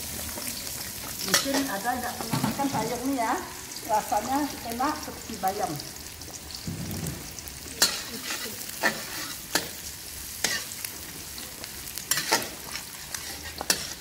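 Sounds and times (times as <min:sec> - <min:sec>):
shallots sizzling in oil: 0:00.0 - 0:14.0
metal spatula clinking on pan: 0:07.8 - 0:09.7.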